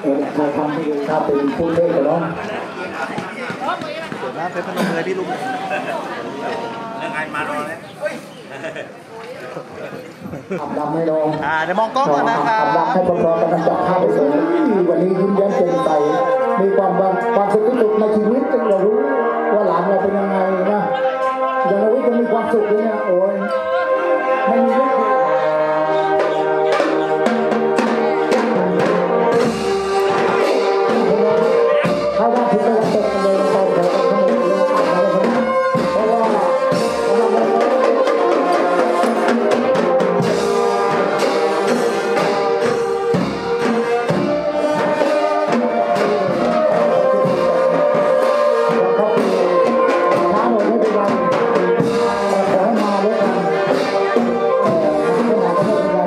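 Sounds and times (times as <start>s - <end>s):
steady drum beat: 3.0s - 5.3s, 26.6s - 56.0s
brass horns playing: 12.4s - 56.0s.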